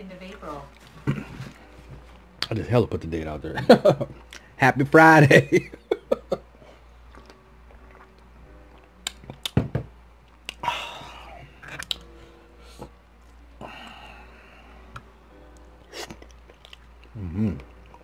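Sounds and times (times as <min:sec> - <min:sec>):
drinking and chewing: 0:00.7 - 0:02.6, 0:04.1 - 0:04.5, 0:06.8 - 0:09.6, 0:10.3 - 0:14.2, 0:15.0 - 0:18.0.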